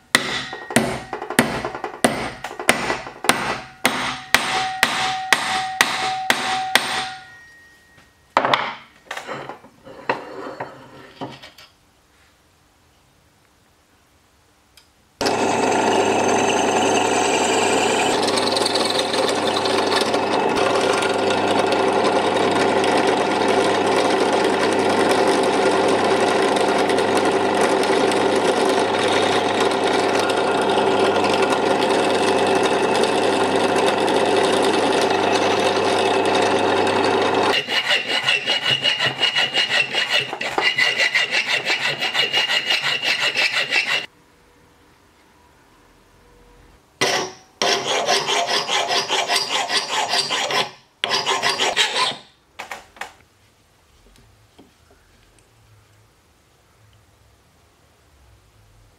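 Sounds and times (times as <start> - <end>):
drill press humming: 15.2 - 37.6
hand file rasping on metal: 37.5 - 44.1, 47.0 - 52.3.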